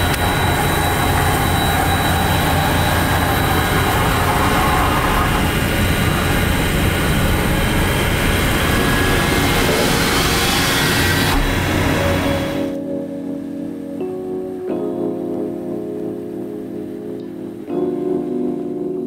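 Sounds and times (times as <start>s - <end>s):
vacuum pump truck droning: 0.0s - 12.8s.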